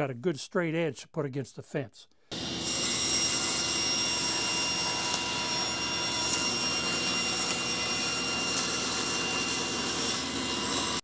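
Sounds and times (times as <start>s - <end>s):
table saw cutting wood: 2.3s - 11.0s.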